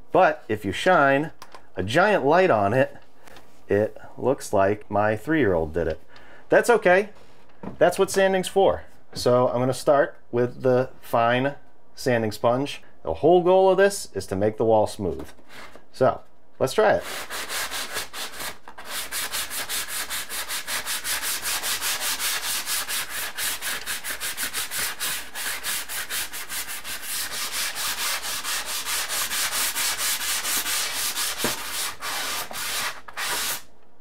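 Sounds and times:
sanding sponge rubbing drywall: 0:17.0 - 0:33.7.

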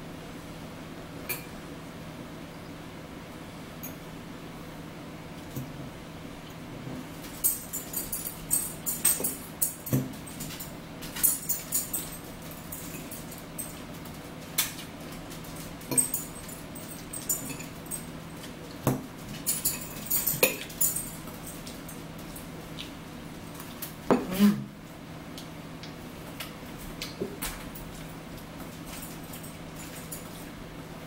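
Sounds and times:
forks clinking on plates: 0:07.2 - 0:13.9, 0:14.6 - 0:22.4.

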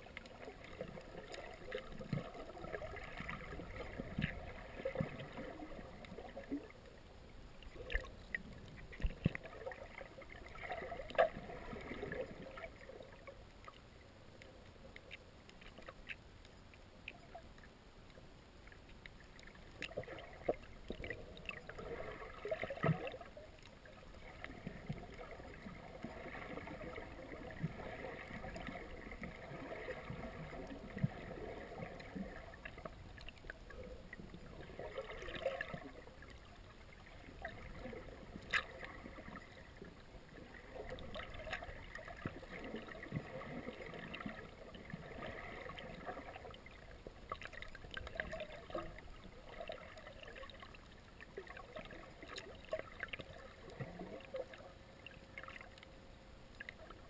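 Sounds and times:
muffled underwater water movement: 0:00.0 - 0:57.0
underwater clicks and knocks: 0:00.2 - 0:05.4, 0:07.6 - 0:11.4, 0:14.9 - 0:21.8.

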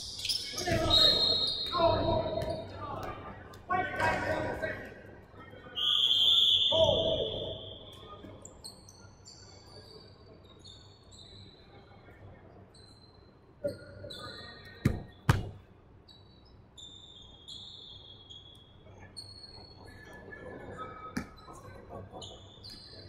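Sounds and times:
referee's whistle: 0:00.2 - 0:02.6, 0:05.8 - 0:08.1.

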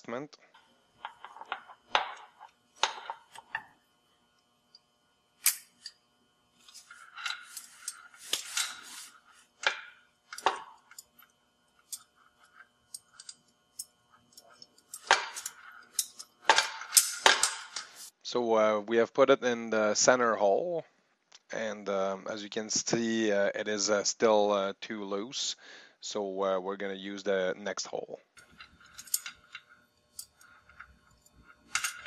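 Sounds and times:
small metal clicks and rattles: 0:01.0 - 0:03.7, 0:06.6 - 0:18.1, 0:28.4 - 0:32.0.

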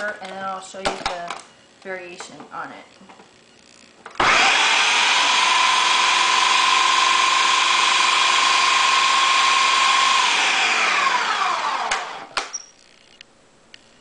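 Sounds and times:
blender motor running: 0:04.2 - 0:12.4.

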